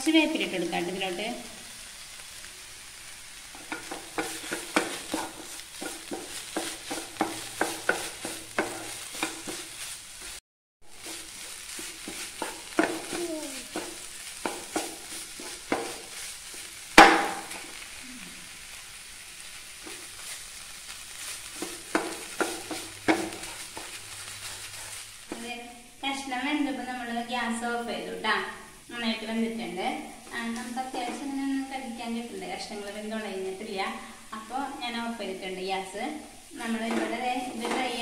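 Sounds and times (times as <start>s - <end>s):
faint sizzle: 0.0s - 38.0s
wooden spatula scraping a frying pan: 3.0s - 17.9s, 18.5s - 25.5s, 30.2s - 31.5s, 36.6s - 38.0s.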